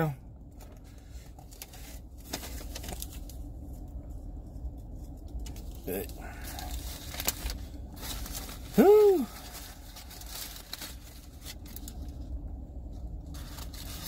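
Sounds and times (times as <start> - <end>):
foil wrapper crinkling: 0.6 - 3.5, 5.4 - 12.2, 13.3 - 14.0
man humming a note: 8.8 - 9.4.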